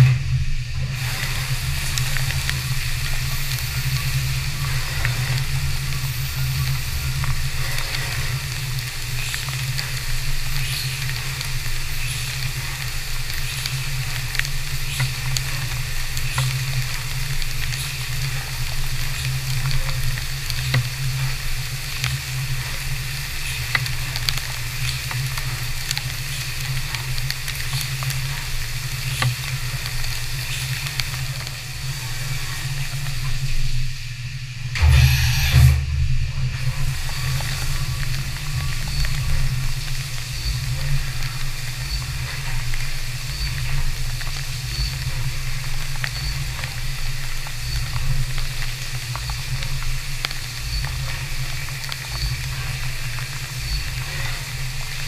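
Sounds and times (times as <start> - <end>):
coolant spray hissing: 0.2 - 55.0
milling machine humming: 34.8 - 39.6.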